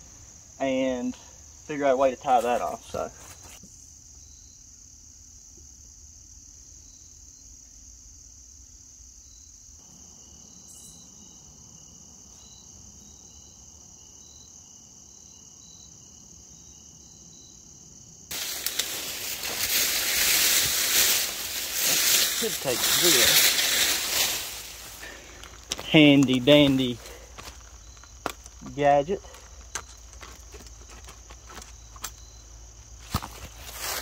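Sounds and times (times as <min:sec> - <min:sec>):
high-pitched insect trill: 0:00.0 - 0:34.0
loud rustling and crunching: 0:18.3 - 0:34.0.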